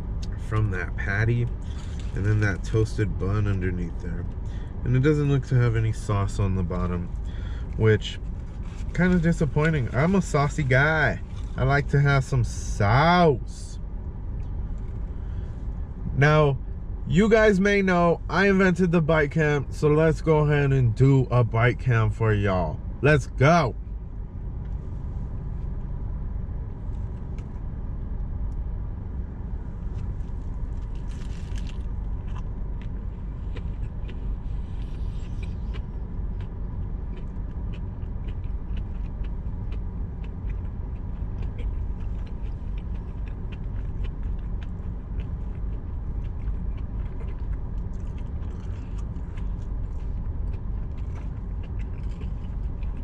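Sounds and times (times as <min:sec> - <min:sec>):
steady low rumble: 0:00.0 - 0:53.0
biting and chewing burger: 0:01.5 - 0:11.8, 0:29.8 - 0:53.0.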